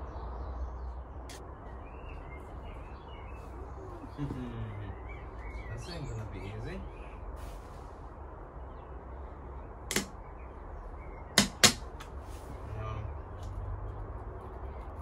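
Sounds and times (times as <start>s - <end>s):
sharp clicks on car bumper: 9.9s - 10.2s, 11.4s - 12.2s.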